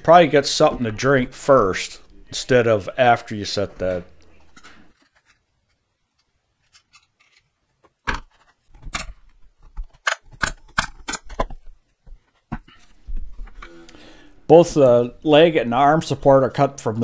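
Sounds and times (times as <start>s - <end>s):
sharp clicks and wooden knocks: 8.0s - 12.8s.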